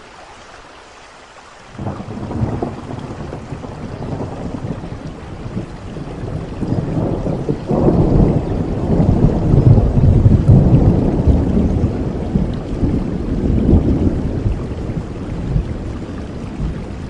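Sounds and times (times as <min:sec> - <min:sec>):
steady rain: 0:00.0 - 0:17.0
thunder rumbling: 0:01.8 - 0:17.0.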